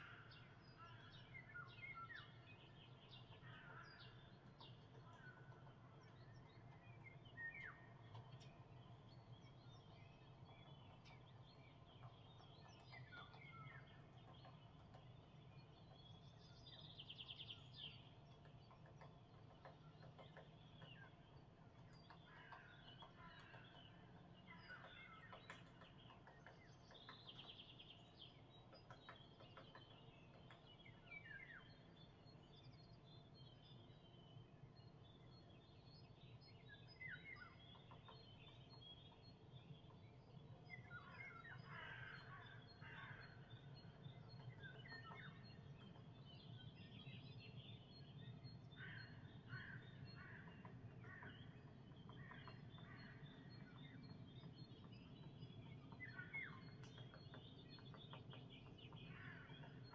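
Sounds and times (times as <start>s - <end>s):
songbirds chirping: 0.0s - 59.9s.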